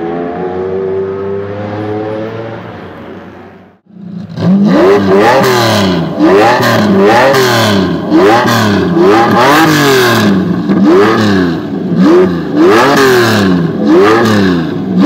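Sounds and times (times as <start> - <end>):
car engine running: 3.8 - 15.0.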